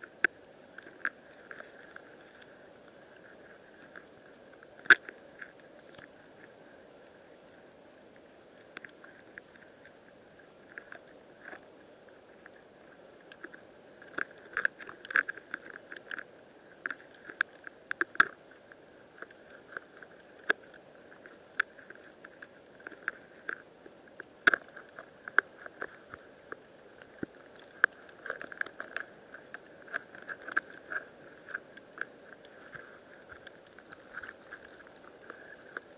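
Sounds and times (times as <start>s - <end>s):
sharp underwater clicks and crackles: 0.0s - 35.9s.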